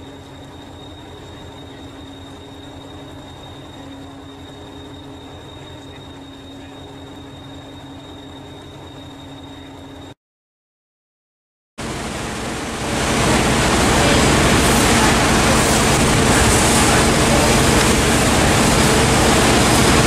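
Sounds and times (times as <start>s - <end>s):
thin high whine: 0.0s - 10.2s, 11.8s - 20.0s
diesel engine rumbling: 11.8s - 20.0s.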